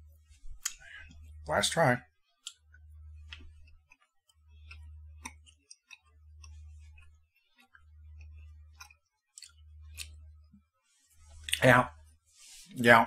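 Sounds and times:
low hum: 0:00.0 - 0:12.7
person chewing candy: 0:02.2 - 0:10.6.

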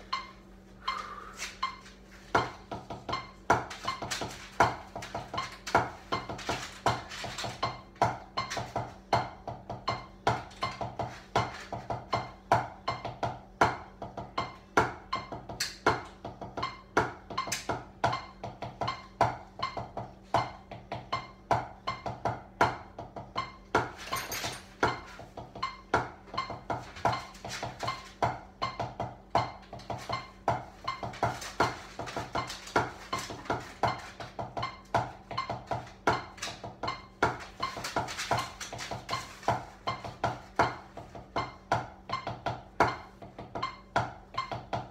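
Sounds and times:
drumsticks beating on pots and pans: 0:00.0 - 0:44.9.

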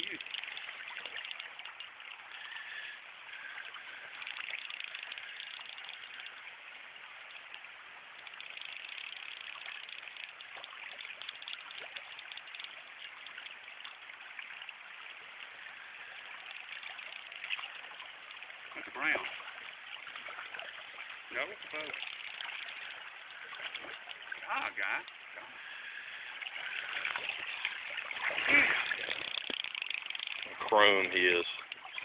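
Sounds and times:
river water rippling over riffle: 0:00.0 - 0:32.0.

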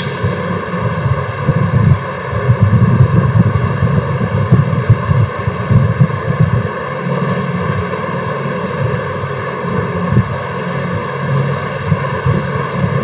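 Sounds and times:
buzzing electrical hum: 0:00.0 - 0:13.0
low rumbling background noise: 0:00.0 - 0:13.0.

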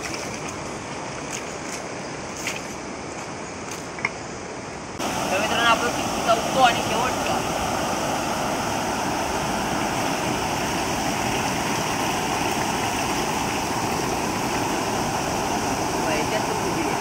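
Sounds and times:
stream water over a weir: 0:00.0 - 0:02.8, 0:04.8 - 0:17.0
water splashing from a pipe: 0:05.0 - 0:17.0.

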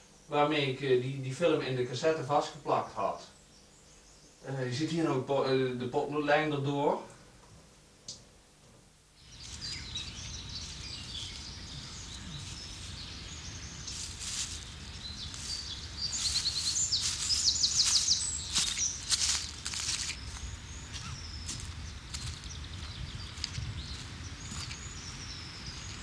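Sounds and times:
small birds chirping and singing: 0:01.8 - 0:05.2, 0:09.2 - 0:26.0
bird trill: 0:09.2 - 0:21.7
low outdoor rumble: 0:09.2 - 0:26.0
sharp rustles: 0:13.8 - 0:20.4.

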